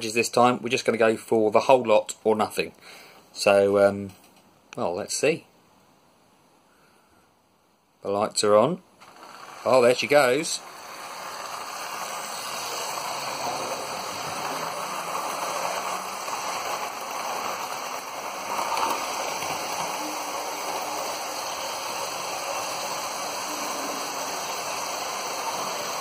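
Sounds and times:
model train wheels rumbling: 0:09.0 - 0:26.0
motor whirr: 0:09.0 - 0:26.0.

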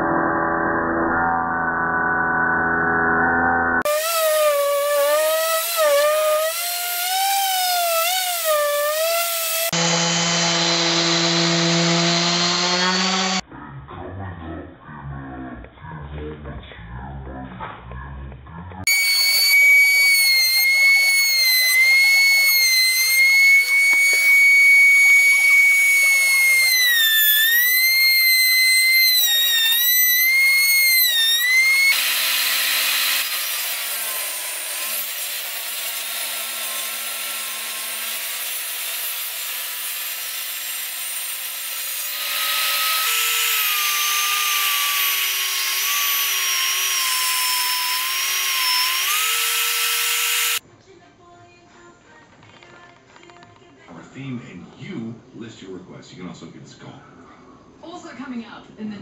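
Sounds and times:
router whining: 0:03.8 - 0:13.4, 0:18.8 - 0:50.6
sander grinding wood: 0:03.8 - 0:13.4, 0:18.8 - 0:50.6
table saw cutting: 0:03.8 - 0:13.4, 0:18.8 - 0:50.6.

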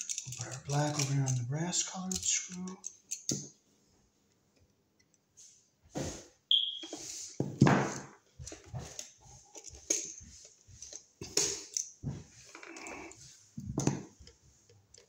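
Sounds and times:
clicks and knocks of hand work: 0:00.0 - 0:03.6, 0:06.9 - 0:15.0
brief high squeak: 0:06.5 - 0:07.0.

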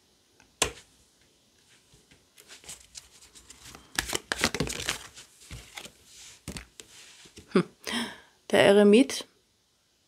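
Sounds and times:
cards being shuffled by hand: 0:01.6 - 0:07.6.

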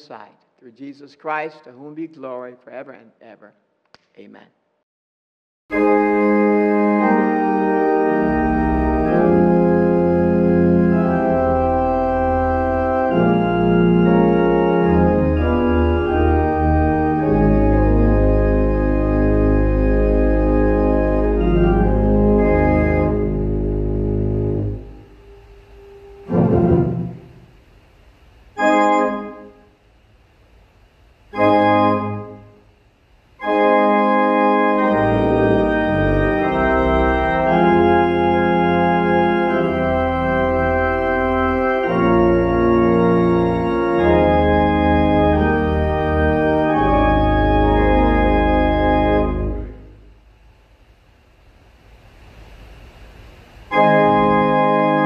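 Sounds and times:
organ chords: 0:05.7 - 0:29.8, 0:31.3 - 0:32.7, 0:33.4 - 0:50.2, 0:53.6 - 0:55.0.

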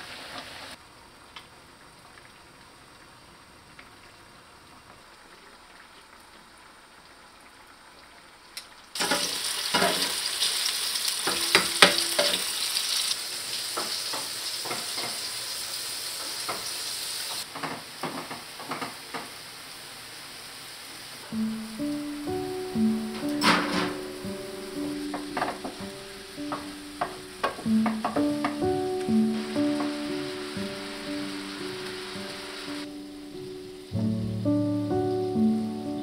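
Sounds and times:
tofu sizzling in oil: 0:08.5 - 0:23.2, 0:24.2 - 0:35.8
wooden spatula stirring pan: 0:26.5 - 0:32.0.

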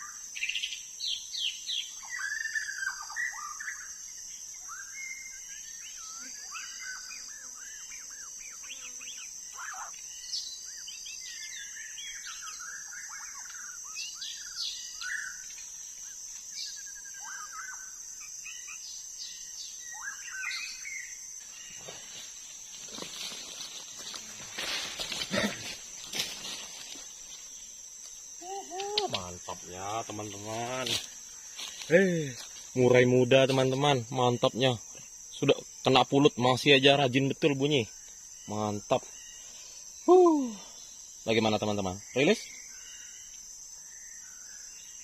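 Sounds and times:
bird singing whistles and chirps: 0:00.0 - 0:03.9, 0:04.5 - 0:17.9, 0:19.7 - 0:21.1
high insect drone: 0:00.0 - 0:45.0.

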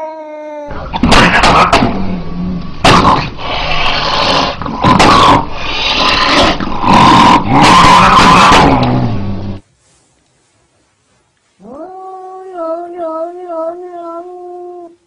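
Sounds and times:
cat hissing: 0:00.0 - 0:02.1, 0:02.8 - 0:09.2
cat growling: 0:00.0 - 0:09.4, 0:11.6 - 0:15.0.

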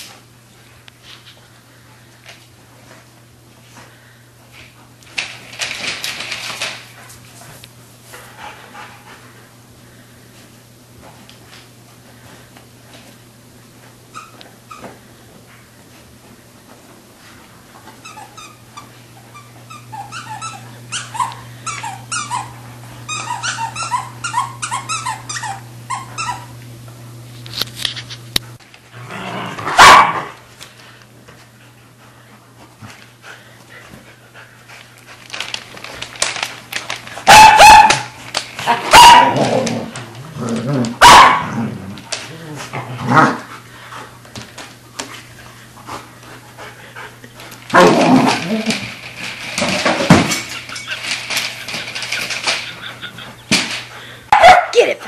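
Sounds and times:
dogs yipping: 0:18.1 - 0:26.5, 0:29.8 - 0:30.2, 0:37.3 - 0:39.4, 0:41.0 - 0:41.5, 0:50.4 - 0:53.6
dogs barking: 0:29.7 - 0:30.3, 0:37.3 - 0:39.5, 0:41.0 - 0:41.6, 0:54.3 - 0:54.8.

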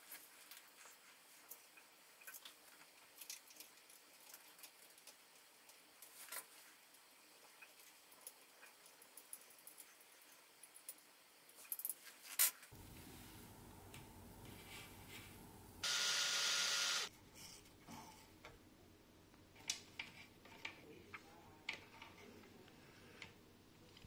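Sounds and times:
low hum: 0:12.7 - 0:17.1
loud hiss: 0:12.8 - 0:17.1.

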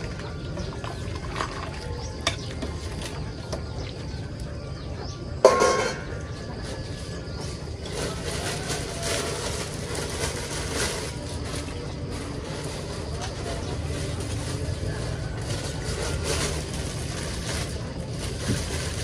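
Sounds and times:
metal ladle clanking on stockpot: 0:05.4 - 0:06.1
plastic bags rustling: 0:06.0 - 0:19.0.

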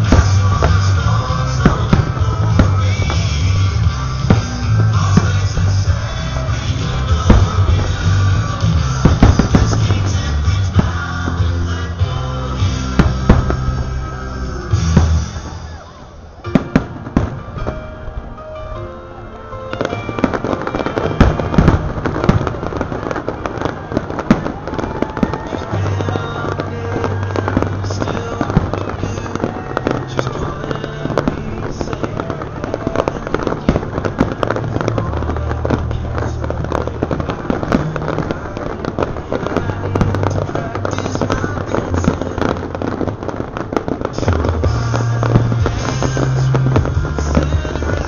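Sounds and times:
firework shells bursting: 0:00.0 - 0:12.0.

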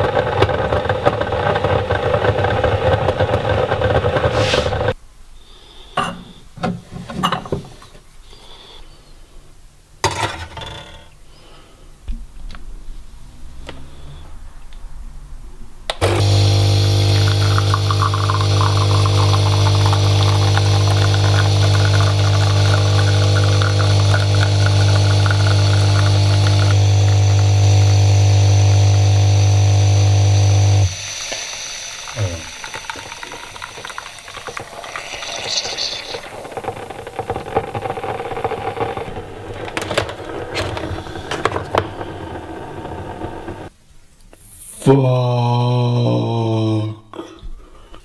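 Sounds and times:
coffee maker pump humming: 0:00.0 - 0:05.0, 0:16.0 - 0:43.7
coffee streaming into mug: 0:16.0 - 0:43.7.

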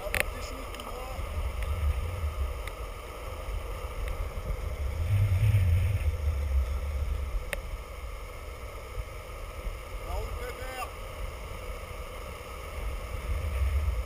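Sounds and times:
wind buffeting microphone: 0:00.0 - 0:10.2, 0:11.2 - 0:14.0
skateboard rolling on asphalt: 0:00.0 - 0:14.0
faint sharp ticks: 0:00.1 - 0:01.8, 0:02.6 - 0:02.8, 0:06.4 - 0:07.7.

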